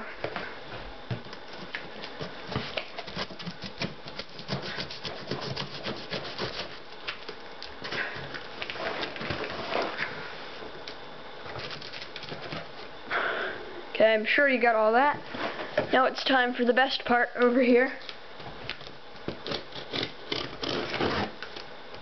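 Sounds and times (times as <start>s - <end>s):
hands scratching packing tape: 2.0s - 7.4s, 19.4s - 21.7s.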